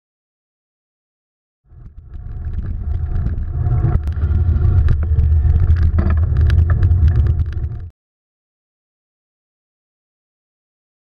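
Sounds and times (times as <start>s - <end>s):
bicycle rolling over pavement: 1.7s - 7.9s
wind buffeting microphone: 1.8s - 7.9s
bike clicks and rattles: 1.9s - 7.9s.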